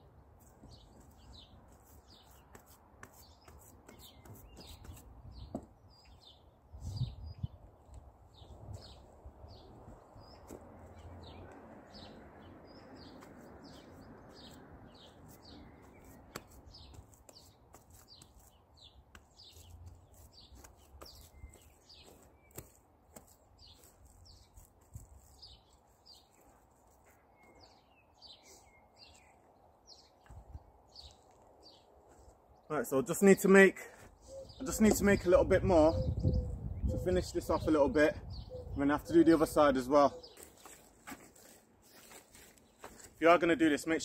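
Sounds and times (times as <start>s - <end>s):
bird chirping: 0.4s - 33.4s, 34.2s - 43.1s
boots treading wet soil: 13.1s - 27.8s, 40.3s - 43.3s.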